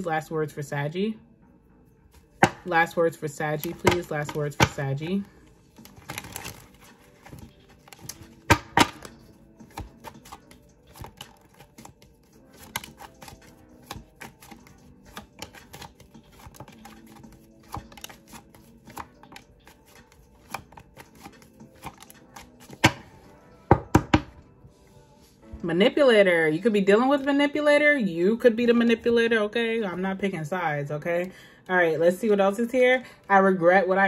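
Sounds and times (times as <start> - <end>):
cards being shuffled: 5.7 - 23.2.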